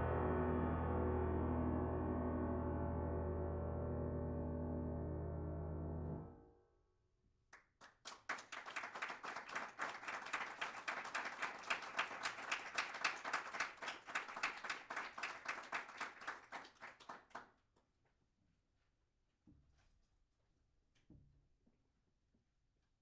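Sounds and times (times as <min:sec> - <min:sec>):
audience applauding: 0:07.8 - 0:17.5.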